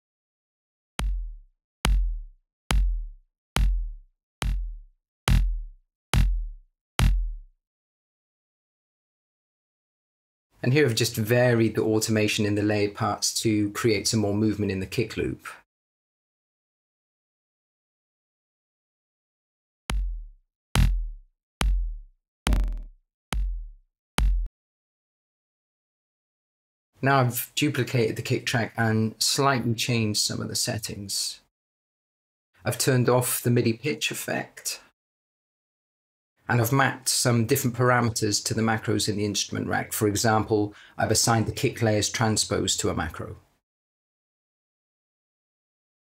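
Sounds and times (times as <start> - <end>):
electronic kick drum hits: 1.0 - 7.5, 19.9 - 24.5.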